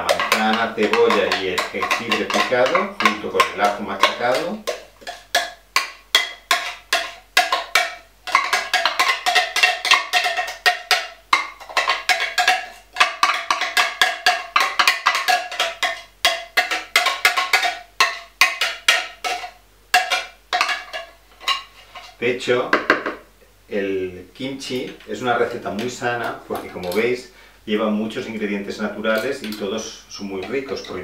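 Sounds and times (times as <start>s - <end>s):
metal spoon knocking on glass jar: 0.0s - 21.7s.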